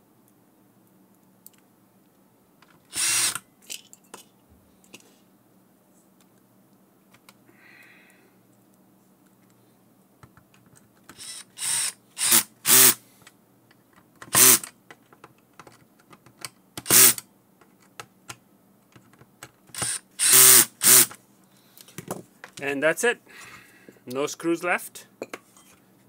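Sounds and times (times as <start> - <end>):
cordless drill driving screws: 2.9 - 3.4, 11.2 - 13.0, 14.3 - 14.7, 16.8 - 17.2, 19.7 - 21.2.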